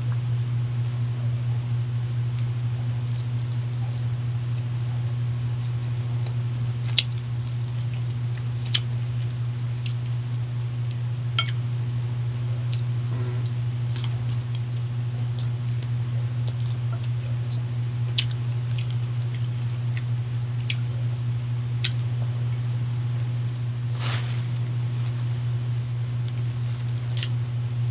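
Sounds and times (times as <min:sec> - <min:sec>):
steady low hum: 0:00.0 - 0:27.9
person chewing food: 0:06.2 - 0:10.2, 0:10.9 - 0:11.6, 0:12.5 - 0:21.0, 0:21.8 - 0:22.6, 0:26.2 - 0:27.9.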